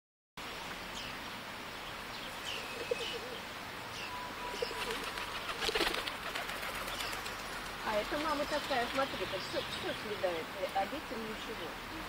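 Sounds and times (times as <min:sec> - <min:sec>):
pigeons cooing: 0:02.4 - 0:10.3
wings flapping: 0:04.6 - 0:09.2.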